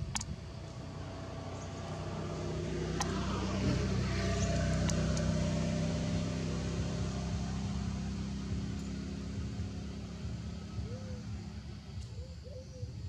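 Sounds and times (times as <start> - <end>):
sharp clicks: 0.0 - 0.3, 3.0 - 3.2
motor engine humming: 0.0 - 13.0.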